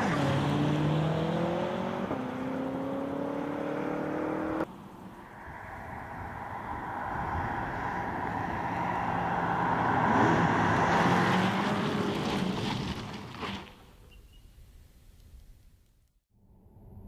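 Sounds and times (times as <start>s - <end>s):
car passing at speed: 0.0s - 13.1s.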